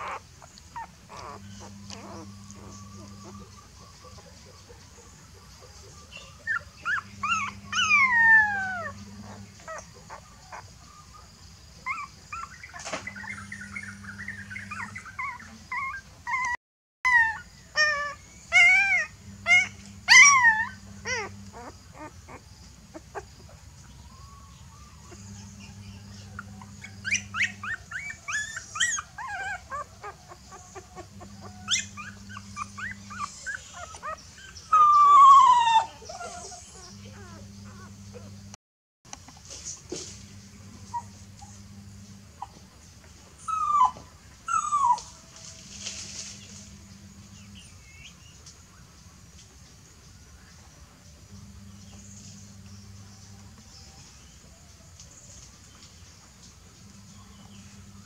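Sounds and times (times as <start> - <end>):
puppy whimpering and squealing: 0.0 - 3.7, 6.3 - 10.7, 11.8 - 38.5, 40.8 - 41.6, 43.4 - 45.2.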